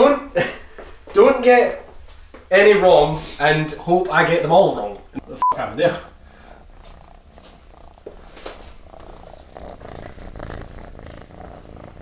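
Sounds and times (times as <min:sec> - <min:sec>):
cat purring: 0:06.2 - 0:12.0.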